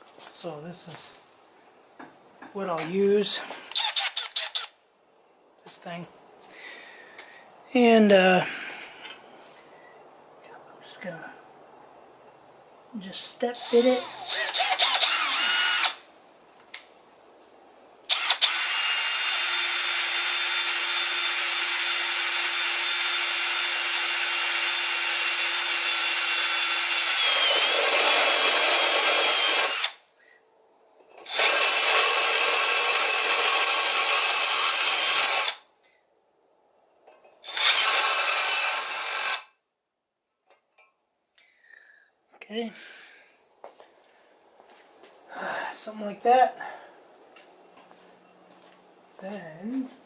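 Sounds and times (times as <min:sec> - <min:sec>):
drill boring into metal: 0:03.7 - 0:04.7, 0:13.6 - 0:16.0, 0:18.1 - 0:30.0, 0:31.2 - 0:35.6, 0:37.4 - 0:39.5.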